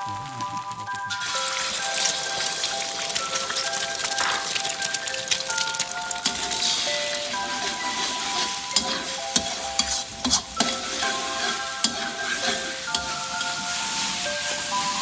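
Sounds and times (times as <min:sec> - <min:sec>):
background music: 0:00.0 - 0:15.0
eggs sizzling in oil: 0:00.0 - 0:15.0
metal spatula scraping a wok: 0:06.2 - 0:15.0.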